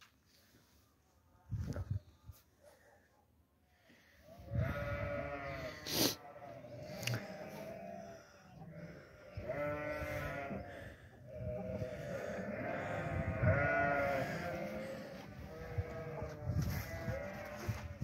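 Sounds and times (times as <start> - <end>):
sheep bleating: 4.5 - 18.0.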